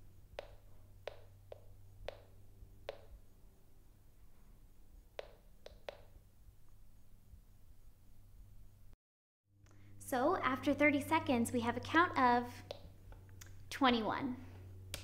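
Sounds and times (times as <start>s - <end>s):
detector sharp clicks: 0.4s - 3.2s, 5.2s - 6.2s.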